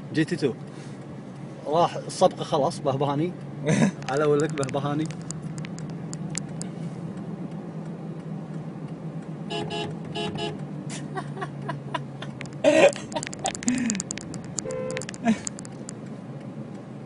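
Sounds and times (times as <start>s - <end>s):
car cabin drone: 0.0s - 17.0s
car horn toots: 9.5s - 10.6s, 14.6s - 15.2s.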